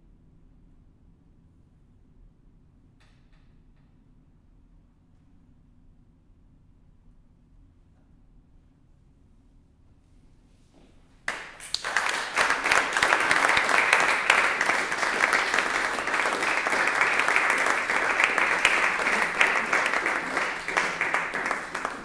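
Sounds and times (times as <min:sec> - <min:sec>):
audience applauding: 0:11.3 - 0:22.0.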